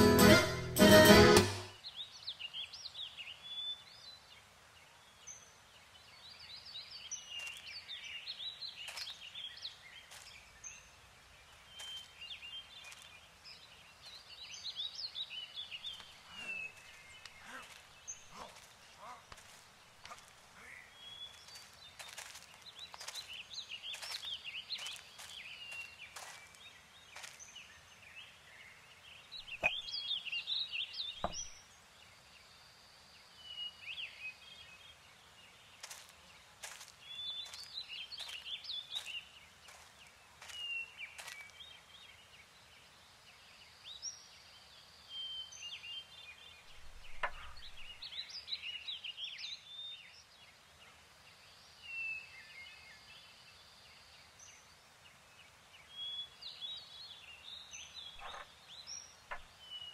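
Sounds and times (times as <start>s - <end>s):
small birds chirping: 1.6s - 59.9s
sharp knocks: 31.2s - 31.5s.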